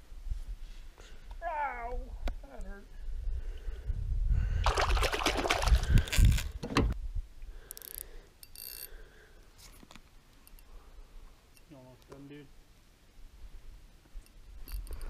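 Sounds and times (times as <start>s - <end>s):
water splashing: 4.6s - 6.2s.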